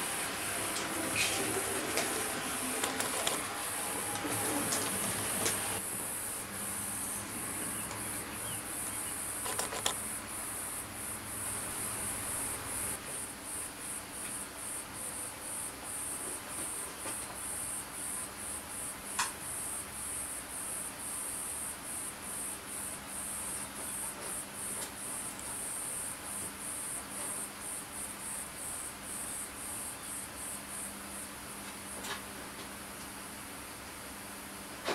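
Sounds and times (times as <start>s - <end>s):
model train motor whirring: 0.0s - 5.8s
sharp clicks: 8.9s - 10.0s.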